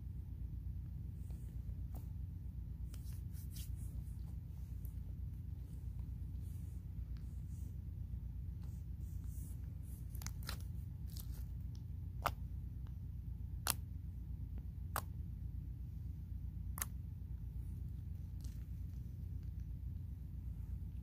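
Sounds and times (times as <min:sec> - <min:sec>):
steady low hum: 0:00.0 - 0:21.0
slime clicking and popping: 0:16.7 - 0:17.0.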